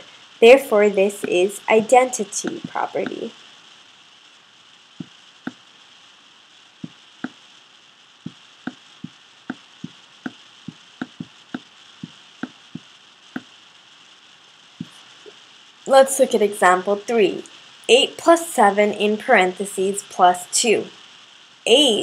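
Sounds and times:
faint steady hiss: 0.0s - 22.0s
stylus tapping on touchscreen: 6.8s - 7.4s, 8.3s - 13.5s.

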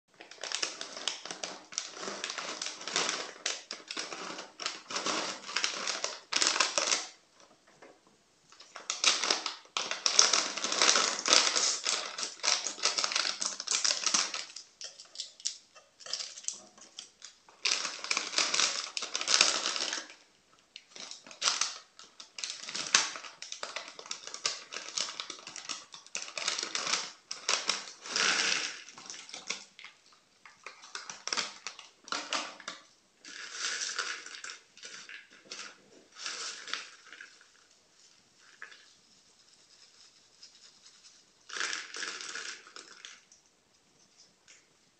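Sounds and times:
plastic snack bag crinkling: 0.1s - 7.5s, 8.5s - 44.7s.

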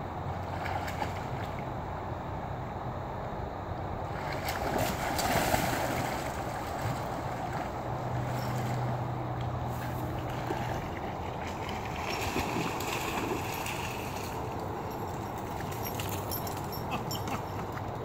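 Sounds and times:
dog paddling splashing water: 4.1s - 17.9s.

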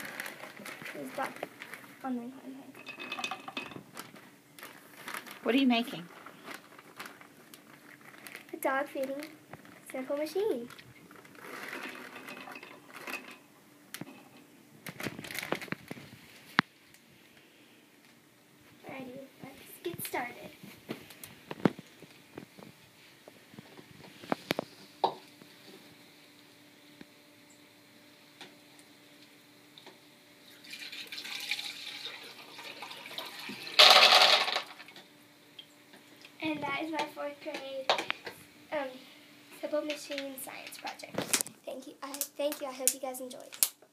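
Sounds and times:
plastic bag rustling: 0.0s - 2.3s, 2.9s - 13.4s, 14.8s - 16.9s, 19.4s - 25.0s
water pouring and splashing: 30.5s - 34.9s.

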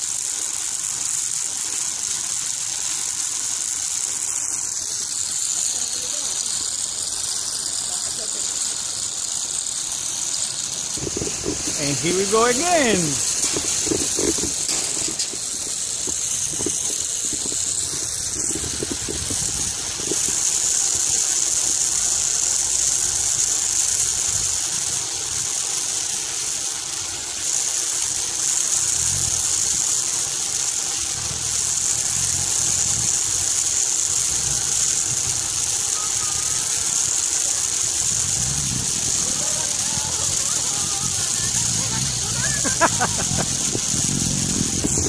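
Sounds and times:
sky bike rolling on cable: 0.0s - 45.0s.

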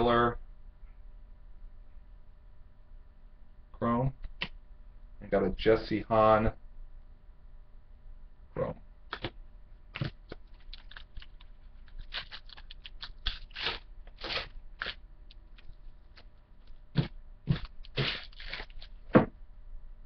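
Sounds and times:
card wrappers crinkling: 10.0s - 19.1s
cards rustling: 10.0s - 19.1s.

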